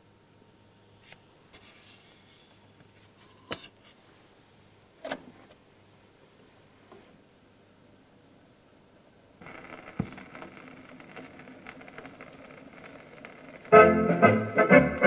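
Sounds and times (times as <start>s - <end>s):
faint steady hum: 0.0s - 15.0s
record rubbing and sliding: 1.0s - 4.0s, 9.4s - 14.7s.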